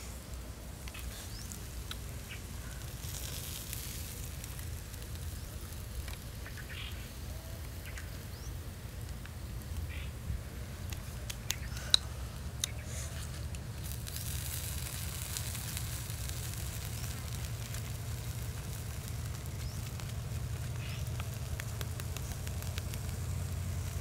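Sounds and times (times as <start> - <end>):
meat crackling over embers: 0.0 - 24.0
sizzling hiss: 0.0 - 24.0.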